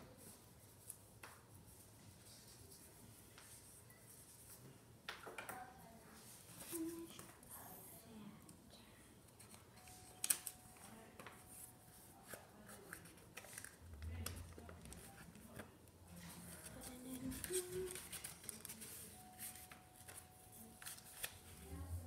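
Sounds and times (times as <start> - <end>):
paper scratching and rustling: 11.4 - 22.0.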